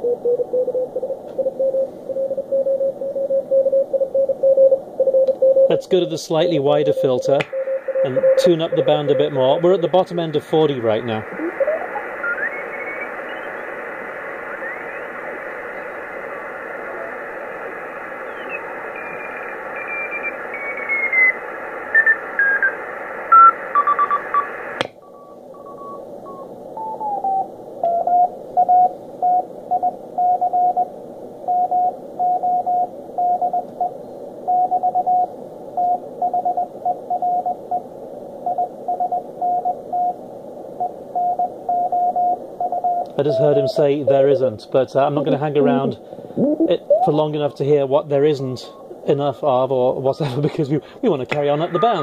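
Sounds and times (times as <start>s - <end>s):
radio band hiss: 5.6s - 52.0s
morse code tone: 7.0s - 9.6s, 41.2s - 43.8s, 51.6s - 52.0s.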